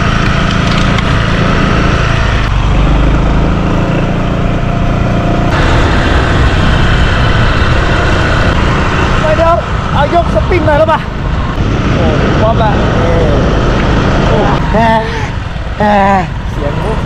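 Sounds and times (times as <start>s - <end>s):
road noise: 0.0s - 17.0s
vehicle engine running: 0.0s - 17.0s
wind rush: 5.4s - 16.4s.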